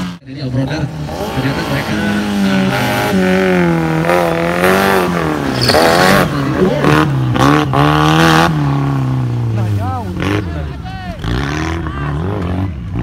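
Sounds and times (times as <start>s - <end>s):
race car engine revving: 0.0s - 13.0s.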